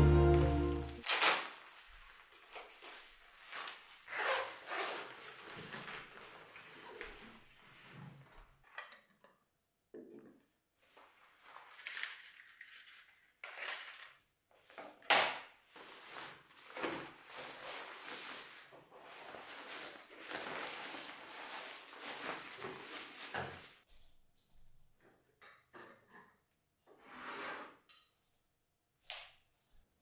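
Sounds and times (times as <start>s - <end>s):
nylon bag rustling: 15.8s - 23.8s.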